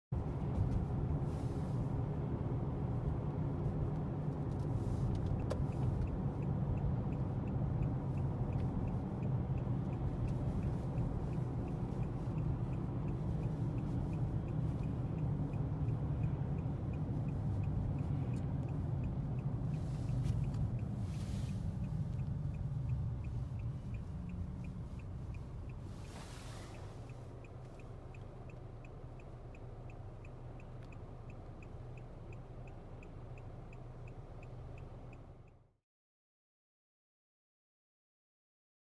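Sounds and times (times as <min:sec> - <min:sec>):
car engine and tyre rumble: 0:00.1 - 0:35.8
passing traffic whooshes: 0:00.2 - 0:35.5
turn signal clicking: 0:00.2 - 0:35.6.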